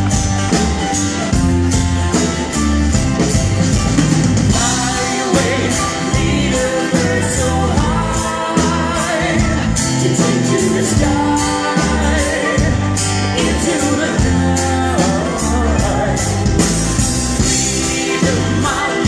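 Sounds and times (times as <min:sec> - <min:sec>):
live country band playing: 0:00.0 - 0:19.0
man and woman singing: 0:04.5 - 0:16.8, 0:17.4 - 0:19.0.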